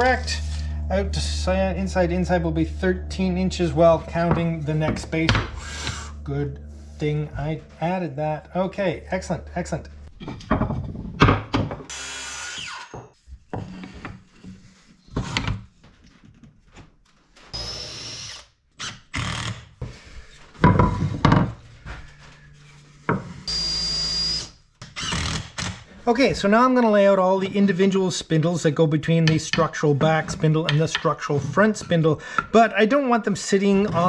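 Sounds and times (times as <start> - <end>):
knocks and clatter: 10.1 - 11.9
cordless drill drilling into wood: 11.9 - 12.9.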